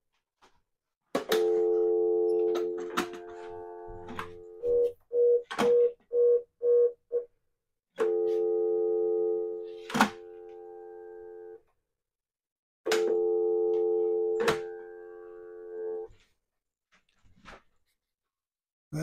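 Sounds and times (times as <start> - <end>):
steady dial tone: 1.3 - 7.2, 8.0 - 11.6, 13.0 - 16.1.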